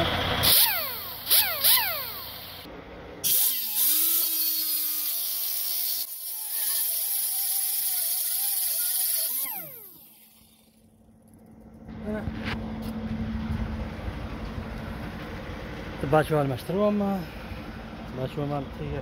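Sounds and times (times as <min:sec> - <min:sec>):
pneumatic cut-off tool cutting metal: 0:00.4 - 0:10.8.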